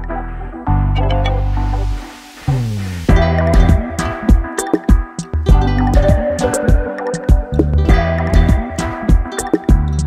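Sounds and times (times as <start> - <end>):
steady drum beat: 2.5 - 9.9.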